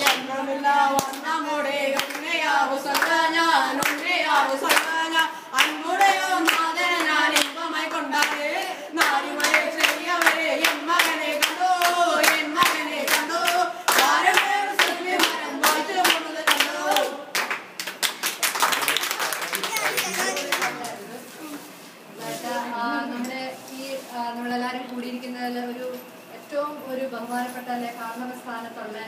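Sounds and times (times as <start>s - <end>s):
young men singing together: 0.0s - 17.3s
hands clapping a beat: 3.8s - 5.0s, 9.0s - 20.9s.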